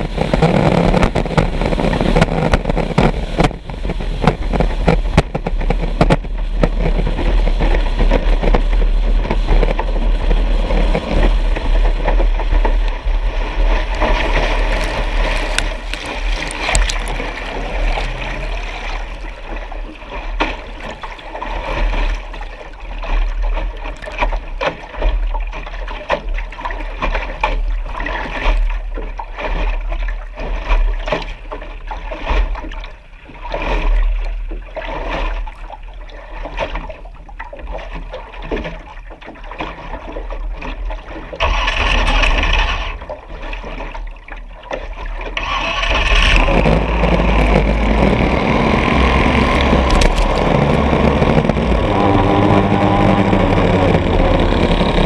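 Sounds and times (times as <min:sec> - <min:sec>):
low rumble: 0:00.0 - 0:23.5, 0:46.0 - 0:55.0
water splashing against boat hull: 0:00.0 - 0:55.0.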